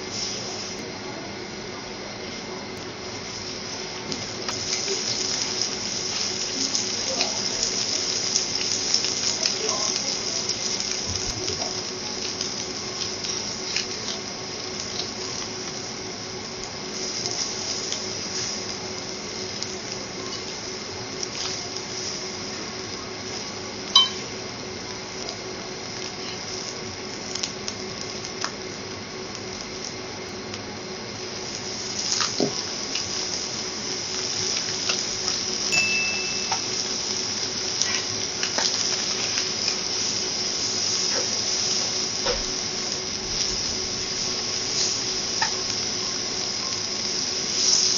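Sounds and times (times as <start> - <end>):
food sizzling on griddle: 0.0 - 47.9
sharp metal clink: 24.0 - 24.2.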